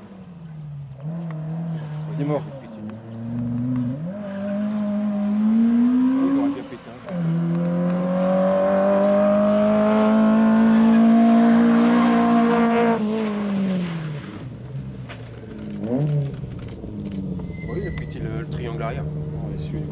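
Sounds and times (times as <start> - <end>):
rally car engine pulling under load: 0.4 - 19.9.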